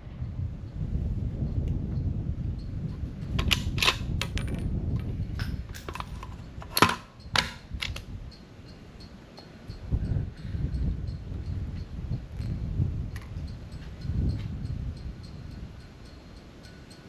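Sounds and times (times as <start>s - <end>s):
rifle metallic clicks and clacks: 3.4s - 4.6s, 5.4s - 8.1s.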